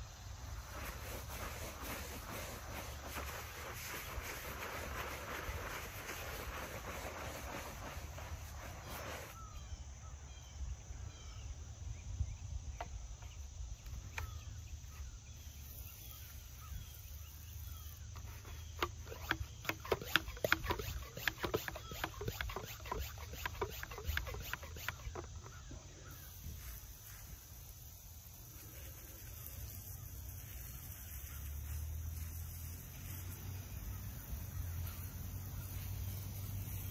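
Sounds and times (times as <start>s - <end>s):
brush scrubbing on stone: 0.4s - 9.4s, 18.2s - 27.7s
faint bird chirps: 8.2s - 36.9s
pump sprayer clicks and knocks: 12.8s - 14.4s, 18.1s - 25.8s.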